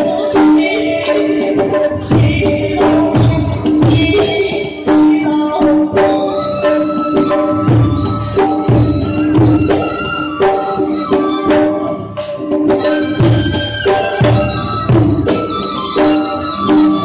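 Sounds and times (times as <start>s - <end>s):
drum strokes: 0.2s - 17.0s
held melodic line: 5.8s - 17.0s.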